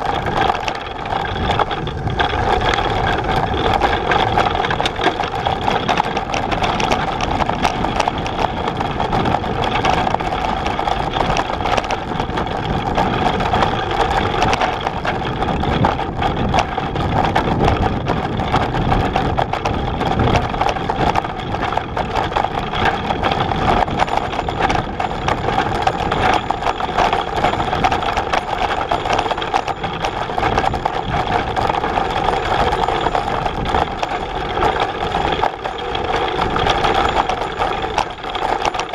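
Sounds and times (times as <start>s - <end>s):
bike rattling on gravel: 0.0s - 38.9s.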